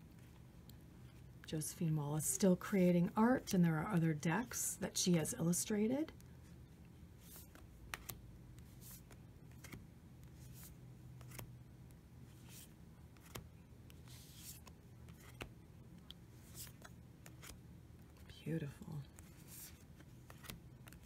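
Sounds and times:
low steady hum: 0:00.0 - 0:21.0
cards sliding off a deck: 0:07.2 - 0:09.8, 0:10.4 - 0:11.5, 0:12.4 - 0:15.5, 0:16.4 - 0:17.6, 0:19.2 - 0:21.0.

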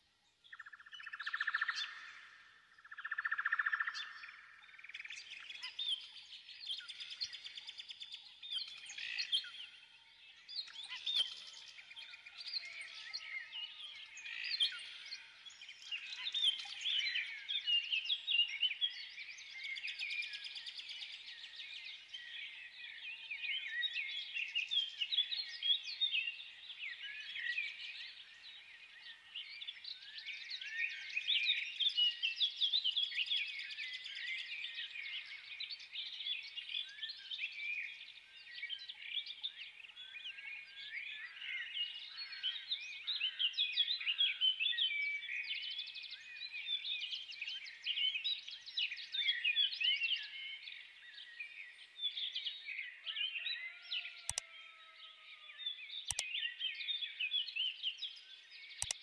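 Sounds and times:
small birds chirping: 0:00.0 - 0:59.0.

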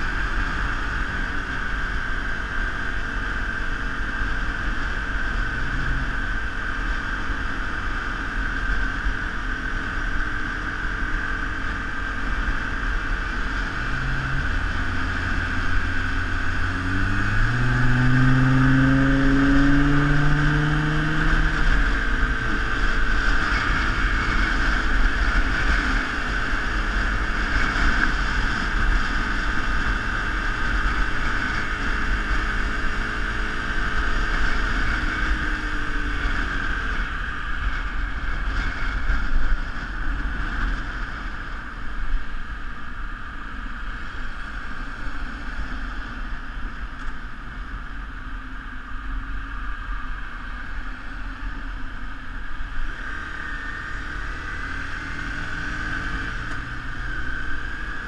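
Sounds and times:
vehicle engine accelerating: 0:00.0 - 0:08.7, 0:11.2 - 0:42.8, 0:52.4 - 0:58.0
road and wind noise: 0:00.0 - 0:58.0.

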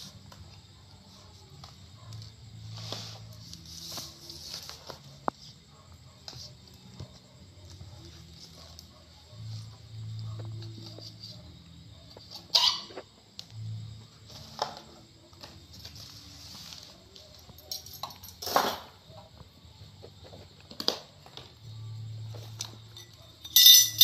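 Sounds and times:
bowls and utensils clinking: 0:23.0 - 0:24.0.

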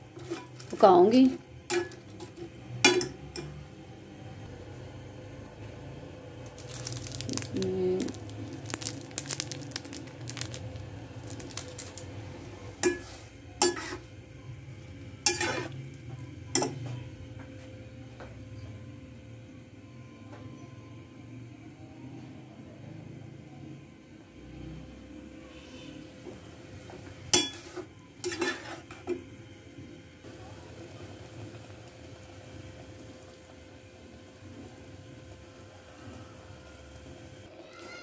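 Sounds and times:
steady low hum: 0:00.0 - 0:30.6
metal spatula scraping a pot: 0:12.8 - 0:14.1, 0:15.2 - 0:15.8, 0:27.4 - 0:29.0.

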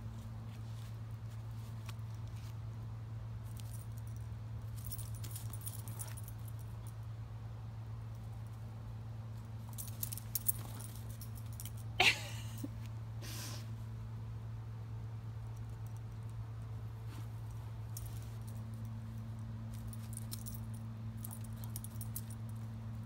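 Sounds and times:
steady low hum: 0:00.0 - 0:23.0
dog collar tags jingling: 0:03.5 - 0:07.0, 0:09.6 - 0:12.0, 0:17.9 - 0:23.0.

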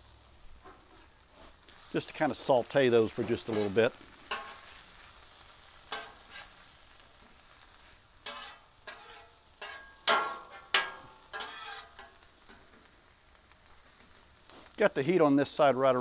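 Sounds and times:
food sizzling: 0:00.0 - 0:16.0
metal spatula scraping a griddle: 0:00.6 - 0:01.9, 0:02.5 - 0:12.8.

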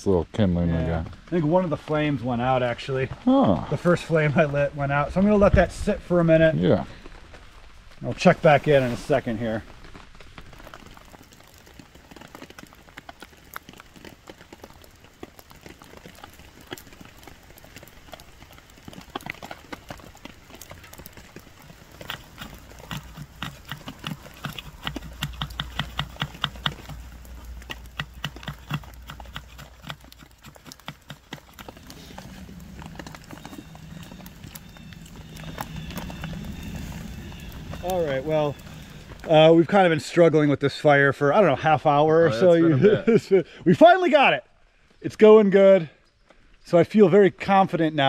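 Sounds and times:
light ticks and crackles: 0:00.0 - 0:40.2
knife shaving wood: 0:10.7 - 0:39.3.

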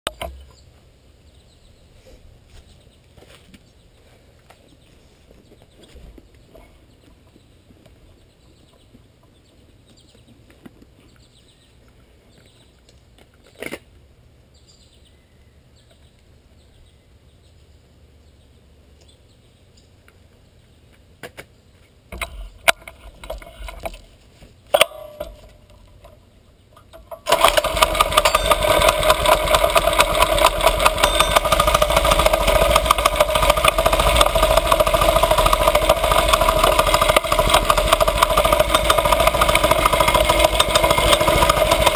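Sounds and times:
small engine running: 0:27.0 - 0:41.9.

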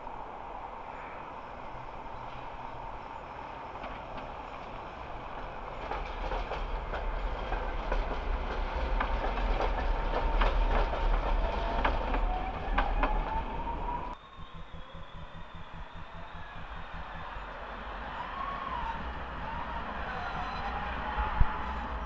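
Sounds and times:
tram wheels clicking over rail joints: 0:02.2 - 0:22.0
thin rising whine: 0:12.5 - 0:22.0.

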